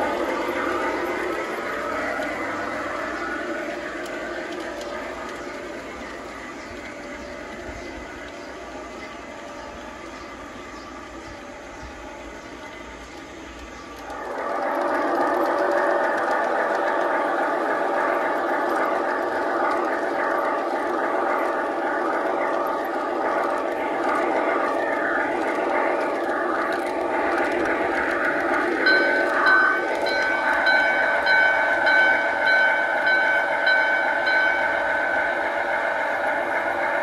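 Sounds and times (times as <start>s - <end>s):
model train motor and wheels drone: 0.0s - 37.0s
high ringing tone: 28.7s - 36.0s
regular ringing pulse: 28.8s - 36.3s.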